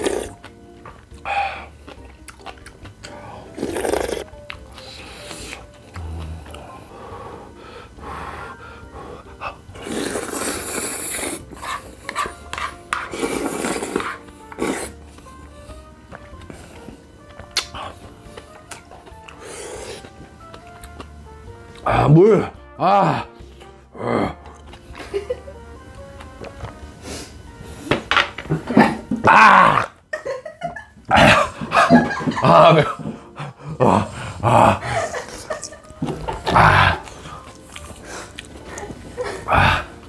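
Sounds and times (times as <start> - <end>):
person slurping noodles: 0.0 - 0.4, 3.3 - 4.3, 9.7 - 11.8, 13.0 - 15.0, 19.3 - 20.1
soft background music: 0.0 - 40.0.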